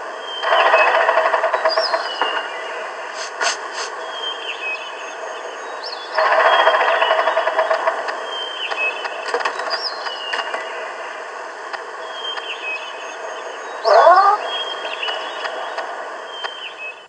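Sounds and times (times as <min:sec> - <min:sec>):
steady hiss: 0:01.3 - 0:06.0, 0:07.4 - 0:13.8
loud rising bird call: 0:13.4 - 0:17.0.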